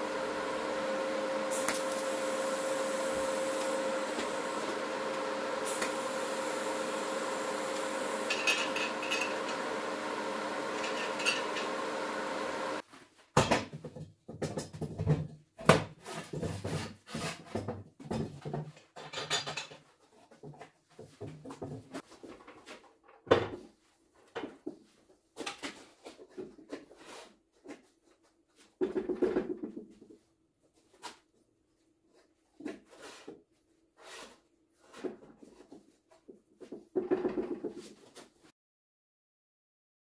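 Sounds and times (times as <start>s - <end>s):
metal clanks and knocks: 8.2s - 9.6s, 10.8s - 11.7s.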